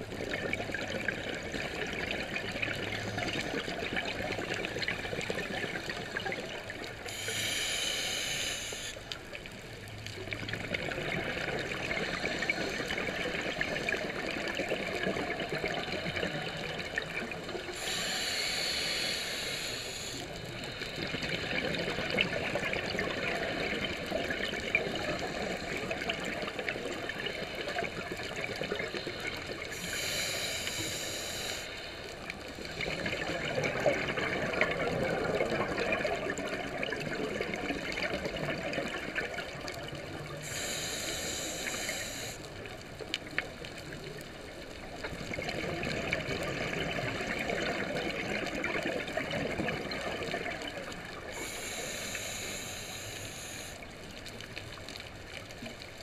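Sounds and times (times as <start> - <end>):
regulator inhalation hiss: 7.0 - 9.1, 17.7 - 21.1, 28.9 - 32.9, 40.3 - 42.5, 51.3 - 53.9.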